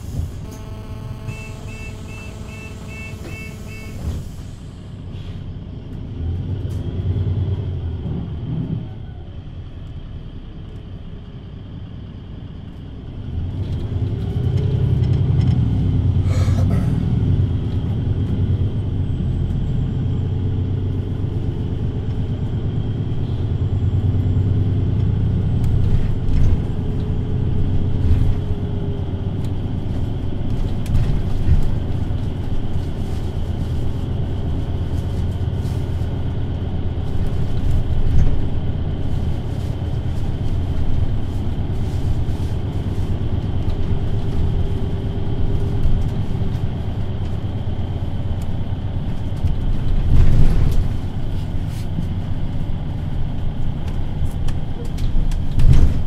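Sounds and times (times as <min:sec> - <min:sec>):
bus engine and road rumble: 0:00.0 - 0:56.0
faint whine: 0:00.1 - 0:05.1.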